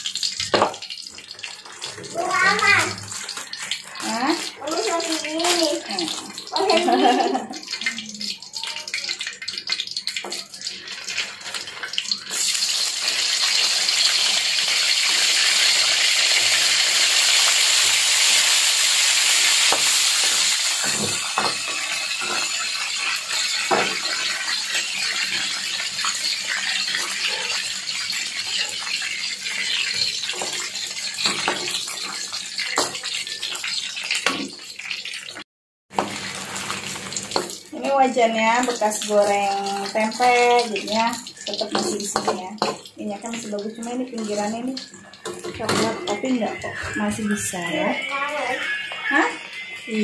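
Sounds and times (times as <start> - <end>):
food sizzling in hot oil: 0.0 - 50.0.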